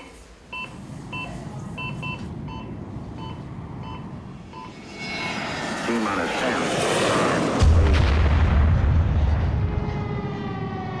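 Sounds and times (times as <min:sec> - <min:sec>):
two-tone monitor beeps: 0:00.0 - 0:04.8.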